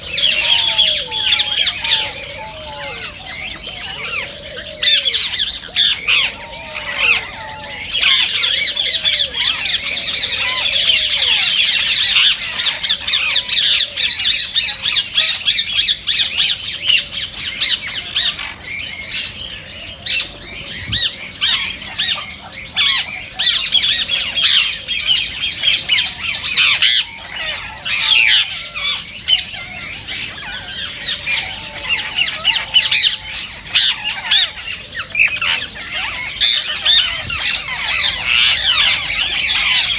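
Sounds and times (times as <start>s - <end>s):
parakeets screeching: 0.0s - 39.9s.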